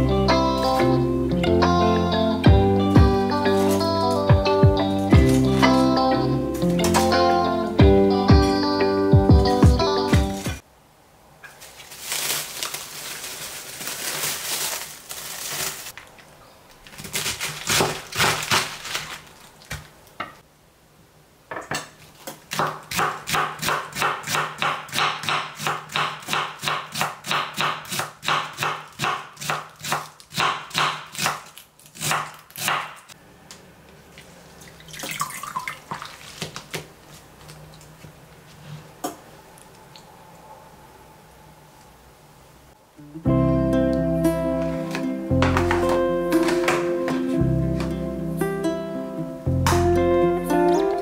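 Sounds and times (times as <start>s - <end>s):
rustling and handling noise: 3.4s - 4.3s, 4.9s - 6.0s, 11.4s - 20.4s, 35.8s - 40.4s, 44.5s - 48.1s
knife chopping cabbage on board: 22.5s - 33.0s.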